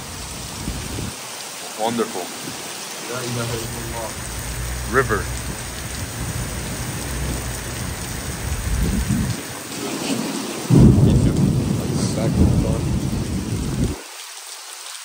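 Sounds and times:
thunder rumbling: 0:00.0 - 0:01.2, 0:03.1 - 0:14.0
heavy rain pouring: 0:00.0 - 0:15.0.

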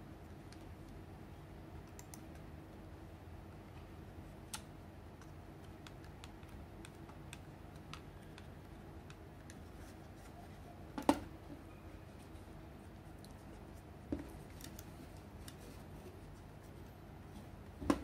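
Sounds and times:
low steady hum: 0:00.0 - 0:18.0
fingers clicking on plastic mouse: 0:05.2 - 0:09.6.

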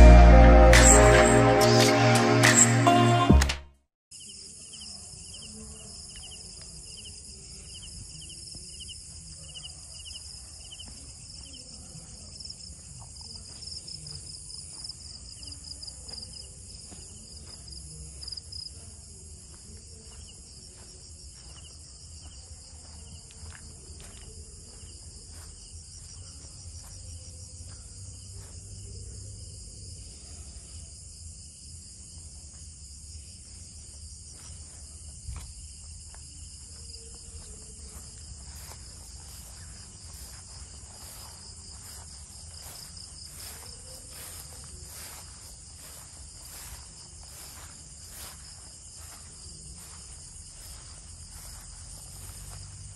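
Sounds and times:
insects chirping trills: 0:04.1 - 0:52.9.

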